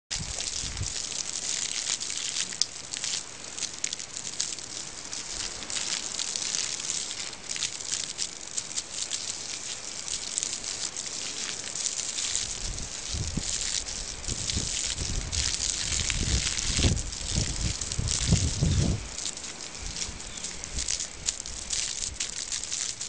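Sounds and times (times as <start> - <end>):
water spraying onto lawn: 0.1 - 23.0.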